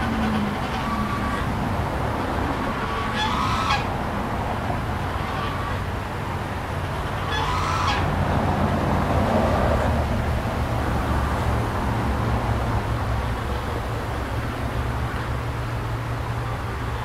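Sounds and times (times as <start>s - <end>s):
goose honking: 0.0s - 1.6s, 2.8s - 3.9s, 5.0s - 5.9s, 6.9s - 8.1s.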